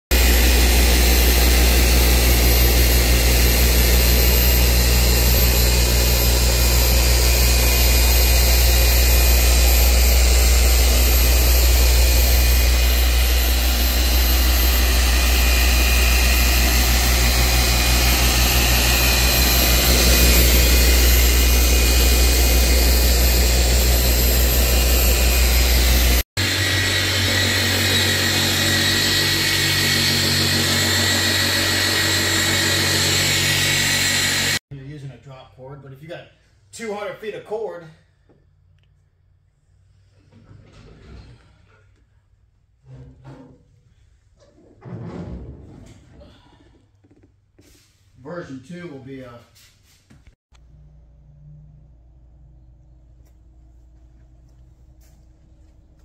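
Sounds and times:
polisher motor hum and whine: 0.1 - 34.6.

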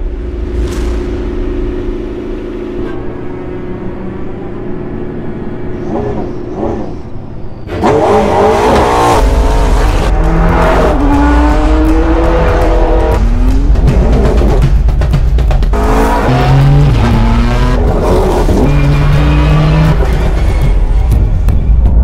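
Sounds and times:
dark background music: 0.0 - 22.0
car engine revving: 7.7 - 14.7, 15.7 - 20.6.

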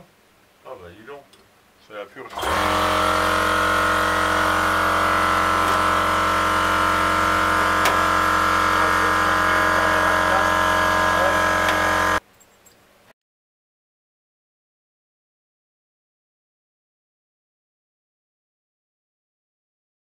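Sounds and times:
low hum: 2.3 - 12.2.

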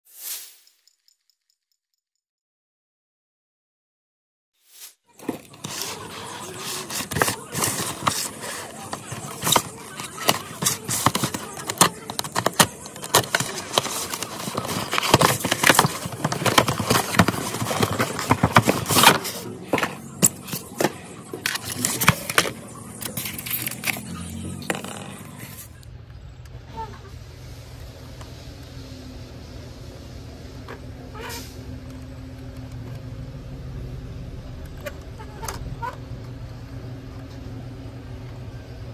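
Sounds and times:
packaging crackling: 5.2 - 25.8.

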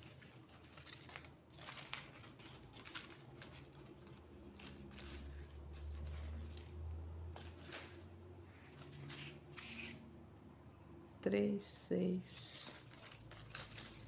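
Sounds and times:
dry leaf fibre rustling and crackling: 0.0 - 9.4, 12.4 - 14.0.

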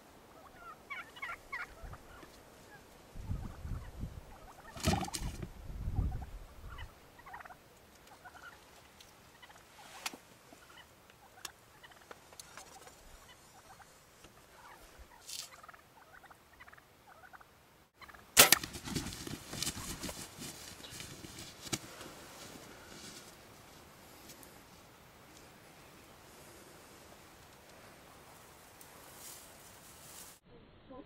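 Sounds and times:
faint turkey calls: 0.2 - 5.1, 6.0 - 18.3
turkeys gobbling: 0.3 - 2.8, 3.4 - 19.0
arrow striking crack: 18.4 - 19.1
bird flopping: 18.4 - 22.1.

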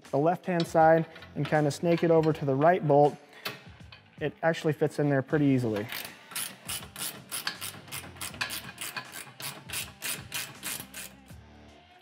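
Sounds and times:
wrench ratcheting on metal: 5.8 - 11.3.

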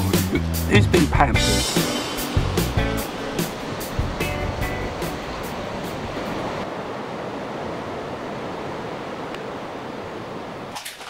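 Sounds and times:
sea surf washing on shore: 1.4 - 10.9.

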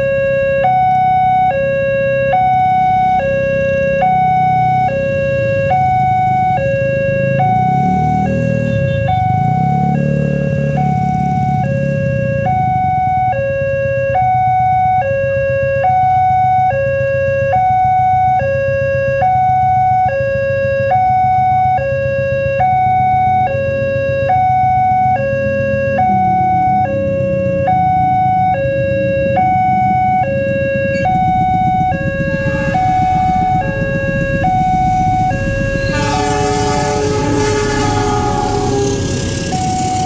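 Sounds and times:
two-tone level crossing alarm: 0.0 - 40.0
low rumble: 30.0 - 40.0.

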